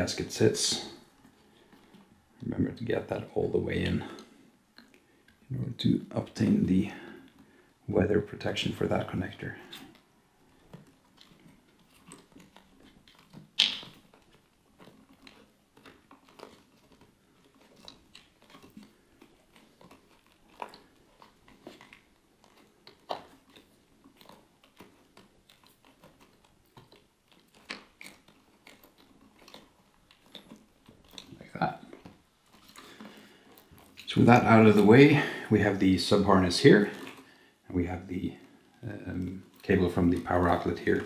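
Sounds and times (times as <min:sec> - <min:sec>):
cables rustling and crackling: 0:00.0 - 0:41.0.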